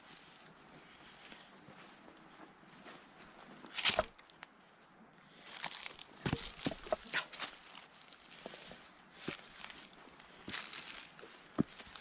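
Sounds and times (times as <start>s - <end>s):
footsteps crunching dry leaves: 5.5s - 12.0s.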